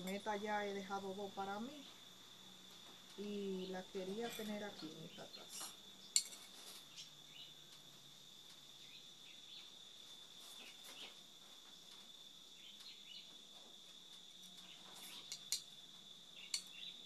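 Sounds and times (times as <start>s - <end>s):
ceramic clink: 6.2s - 6.5s.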